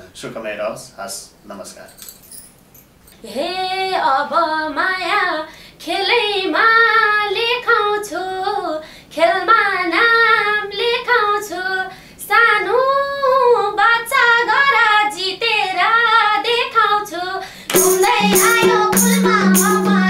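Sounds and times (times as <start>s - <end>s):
woman singing folk song: 3.2s - 20.0s
instrumental accompaniment with percussion: 17.7s - 20.0s.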